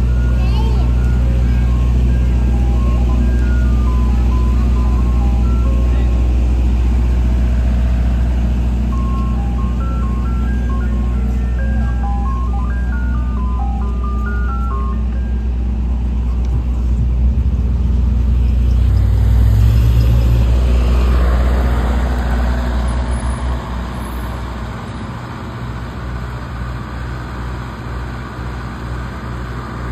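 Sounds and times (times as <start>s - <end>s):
ice cream truck music jingle: 0.0s - 17.4s
truck engine rumble: 0.0s - 29.9s.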